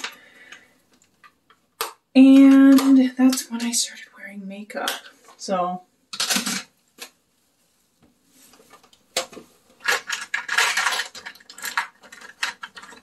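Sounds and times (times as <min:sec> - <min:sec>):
makeup containers clattering: 0:06.2 - 0:06.7, 0:09.2 - 0:13.0.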